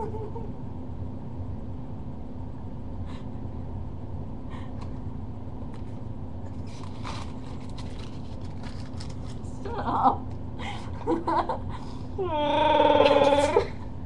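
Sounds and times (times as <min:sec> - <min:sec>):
faint rustles and clicks: 0:05.8 - 0:09.6.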